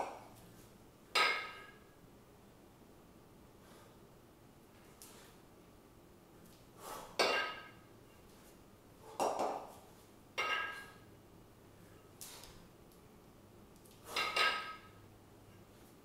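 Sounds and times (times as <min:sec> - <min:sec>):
kettlebells clanking together: 0:01.1 - 0:01.8, 0:07.1 - 0:07.8, 0:10.4 - 0:11.0, 0:14.1 - 0:15.0.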